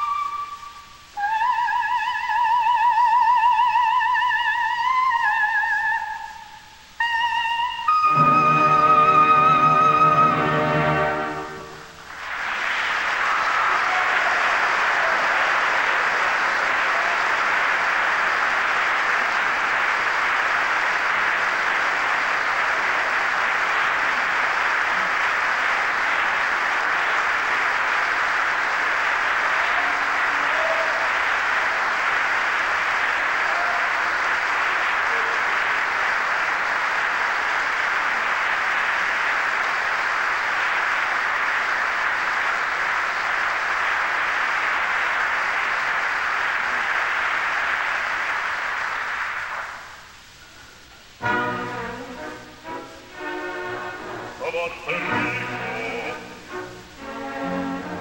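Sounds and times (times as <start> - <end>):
audience applauding: 0.0 - 58.0.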